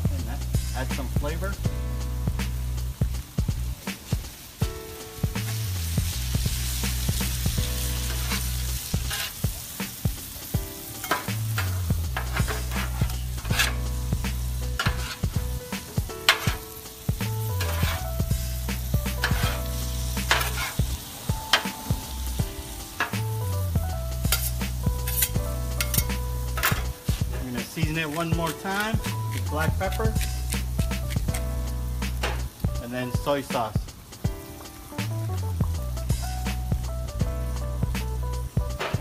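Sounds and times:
background music with bass line: 0.0 - 39.0
food sizzling: 0.0 - 39.0
metal spatulas scraping griddle: 7.9 - 10.0, 10.9 - 21.9, 24.2 - 31.5, 32.1 - 32.6.

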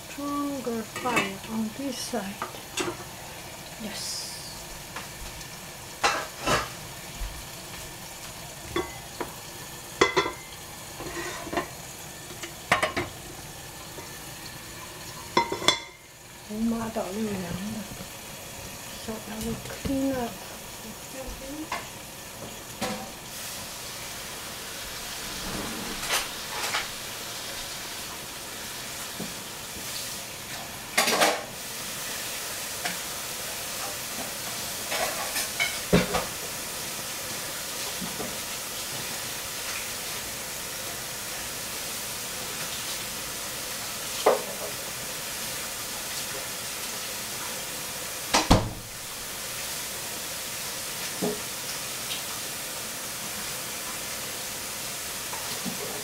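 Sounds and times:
steady kitchen hiss: 0.0 - 56.0
kitchen knocks and clatters: 2.4 - 3.1, 6.0 - 6.8, 10.0 - 11.7, 12.3 - 13.2, 15.3 - 16.0, 21.7 - 23.2, 25.3 - 27.0, 31.0 - 31.5, 34.8 - 36.3, 44.2 - 44.8, 48.3 - 49.0.

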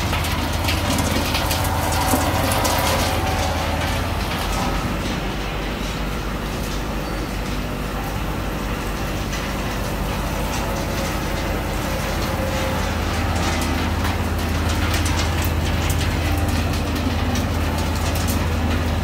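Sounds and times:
plastic shredder cutting: 0.0 - 5.3
motor low hum: 0.0 - 19.0.

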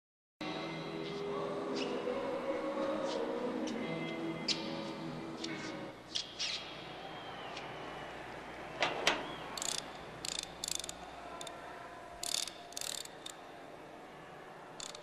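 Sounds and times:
combination dial ratchety clicking: 9.6 - 11.6, 12.2 - 13.4, 14.8 - 15.0.

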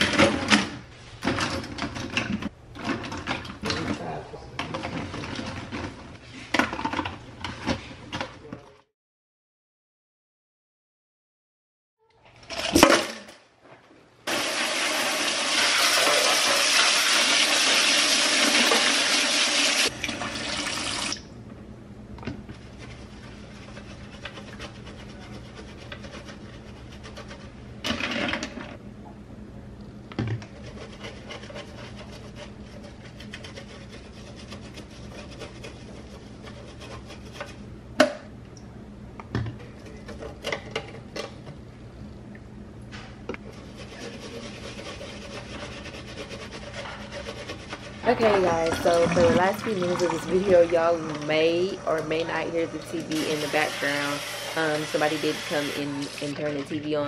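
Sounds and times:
brushes swishing in wet sink: 22.5 - 27.6, 30.5 - 37.6, 43.4 - 57.0.

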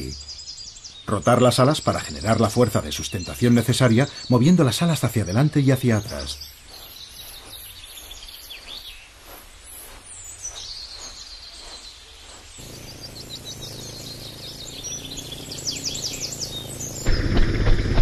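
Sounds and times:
birds chirping and trilling: 0.0 - 17.3
steady low hum: 9.3 - 18.0.

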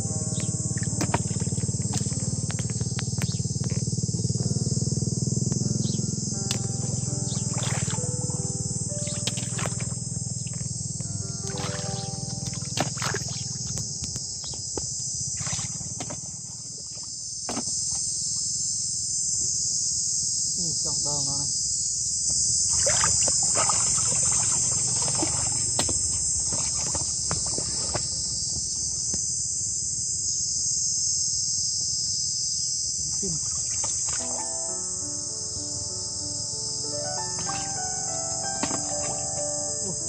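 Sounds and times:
insects chirping: 0.0 - 40.0
water sloshing and splashing: 0.7 - 3.3, 6.5 - 8.3, 9.0 - 10.7, 11.4 - 18.1, 22.6 - 28.3, 33.3 - 34.5, 37.4 - 37.9, 38.6 - 39.4.

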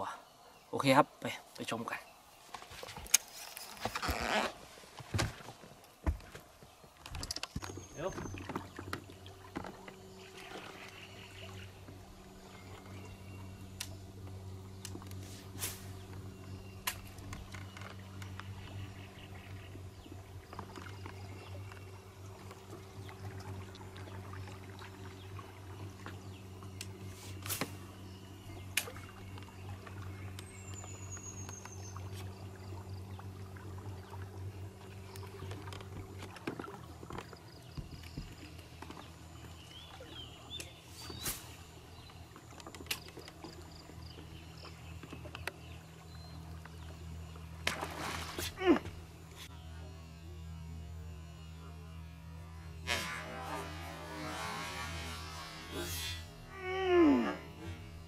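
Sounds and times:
steady low hum: 4.6 - 58.0
lure splashing across water: 47.6 - 49.5.

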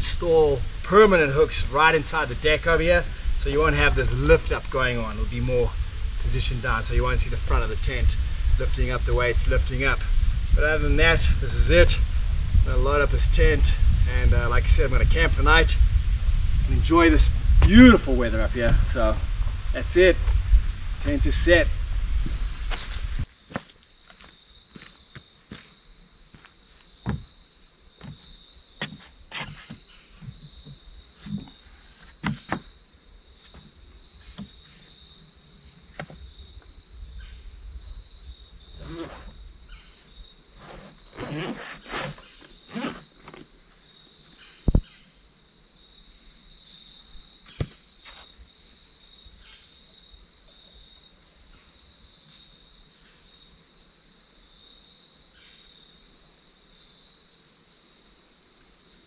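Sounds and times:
crickets chirring: 0.0 - 59.0
footsteps on wooden deck: 22.2 - 27.4, 28.0 - 32.7, 33.4 - 34.7.

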